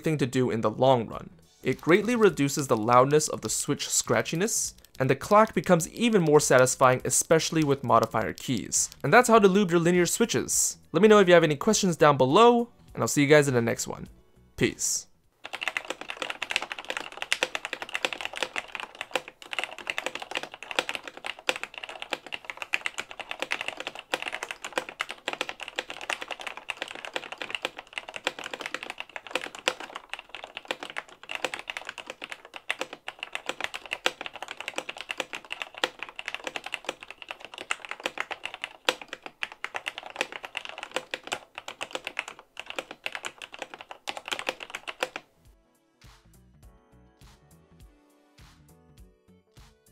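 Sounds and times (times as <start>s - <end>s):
fast typing on mechanical keyboard: 1.7s - 9.4s, 15.4s - 45.2s.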